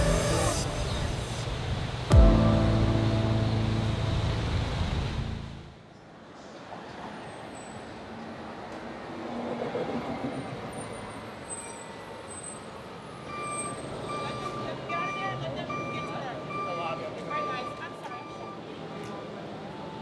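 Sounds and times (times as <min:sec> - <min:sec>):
music with heavy bass: 0:00.0 - 0:01.4, 0:02.1 - 0:05.7
street traffic noise: 0:00.0 - 0:20.0.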